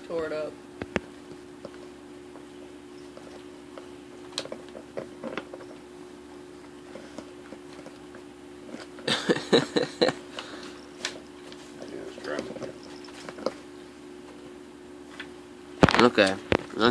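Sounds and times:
dog chewing and licking: 1.1s - 9.0s, 10.9s - 13.8s.

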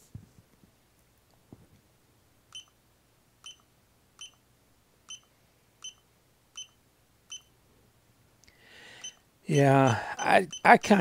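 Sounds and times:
short high beeps: 3.4s - 3.6s, 4.2s - 4.4s, 5.1s - 6.0s, 6.6s - 7.5s, 9.0s - 10.7s.

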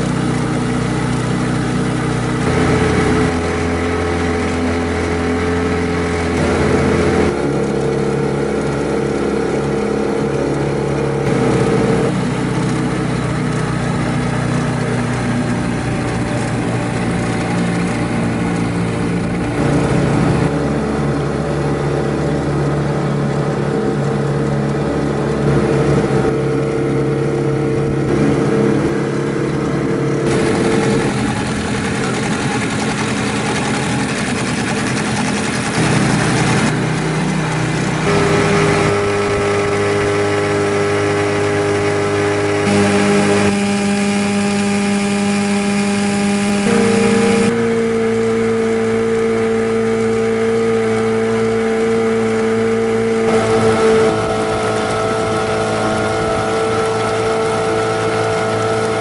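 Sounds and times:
outboard motor running: 0.0s - 59.0s.

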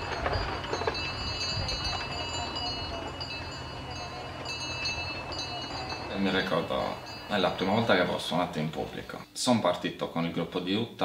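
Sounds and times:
wind rumble on microphone: 0.0s - 6.1s
bells ringing: 0.0s - 9.2s.

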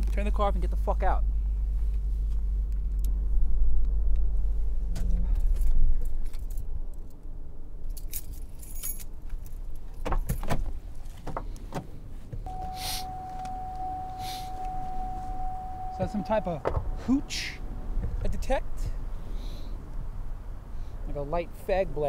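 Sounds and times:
keys jangling: 7.9s - 9.6s
car warning tone: 12.4s - 19.0s
car engine idling: 12.5s - 21.0s.

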